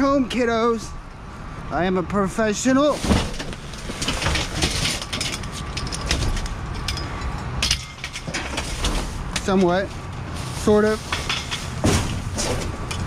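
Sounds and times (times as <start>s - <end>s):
plastic trash bags rustling: 2.8s - 6.4s, 8.2s - 12.9s
metal tubing clattering in dumpster: 2.8s - 13.0s
heavy thump: 3.0s - 4.8s, 11.8s - 12.8s.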